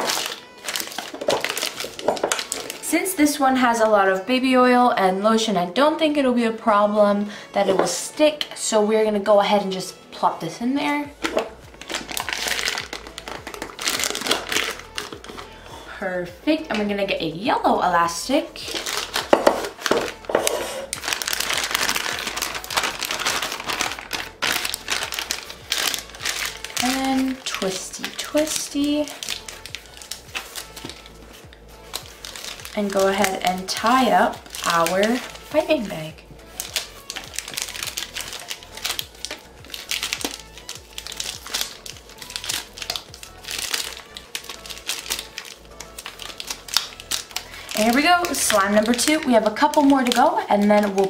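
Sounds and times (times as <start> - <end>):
plastic bag crinkling: 0.0 - 2.9, 11.2 - 15.6, 18.6 - 51.0
background music: 0.0 - 51.0.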